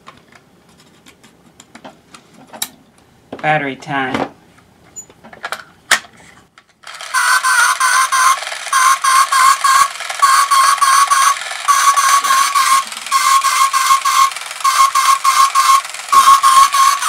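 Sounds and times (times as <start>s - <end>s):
toy motor buzzing clicks: 6.8s - 17.0s.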